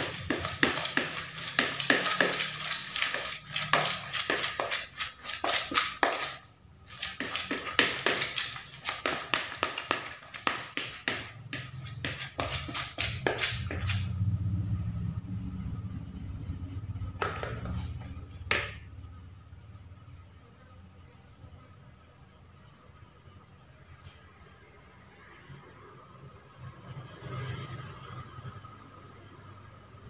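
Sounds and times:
fingers scratching plastic bowl: 0.0 - 14.1.

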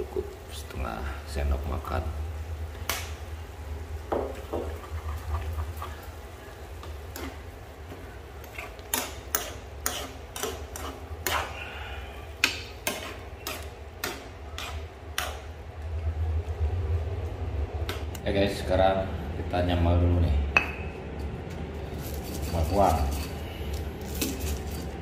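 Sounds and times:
steady low hum: 0.0 - 25.0
metal spoon scraping frying pan: 7.1 - 7.4, 8.4 - 11.6, 12.4 - 15.5, 22.0 - 25.0.

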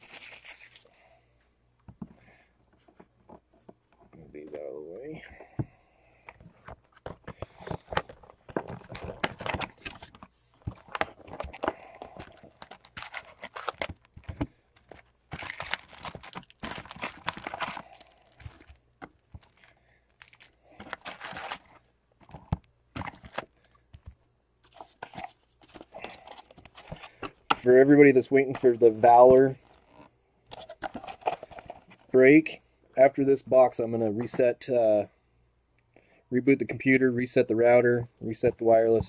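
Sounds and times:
plastic wrapping crinkling: 0.0 - 0.9, 7.0 - 27.2.

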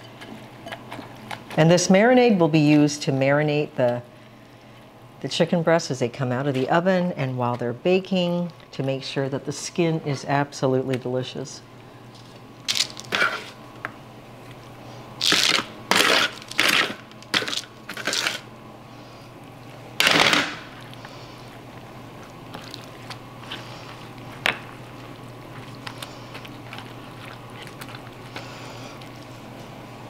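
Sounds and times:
spatula scraping: 13.0 - 13.6, 15.9 - 18.4, 22.2 - 29.3.

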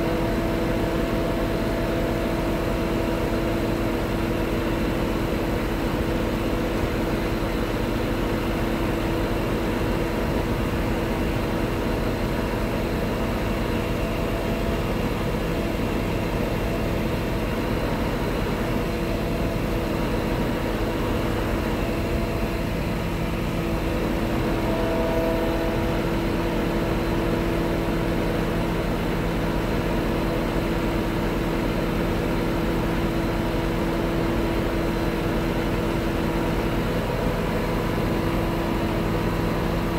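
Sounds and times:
hydraulic pump whine: 0.0 - 39.9
truck diesel engine running: 0.0 - 39.9
lower hum tone: 23.6 - 27.0.

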